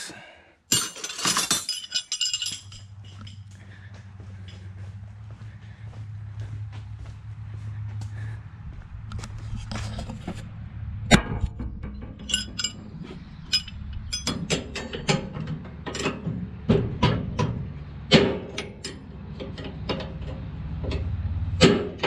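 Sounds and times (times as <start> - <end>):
wrench clinking on metal: 0.7 - 3.6, 11.9 - 15.2
metal clanks: 0.7 - 3.7, 9.1 - 22.0.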